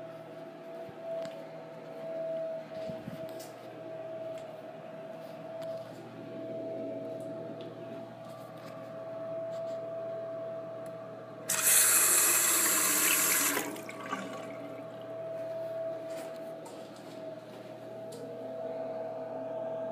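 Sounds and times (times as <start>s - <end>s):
steady high hum: 0.0s - 19.9s
water running into sink basin: 11.5s - 15.0s.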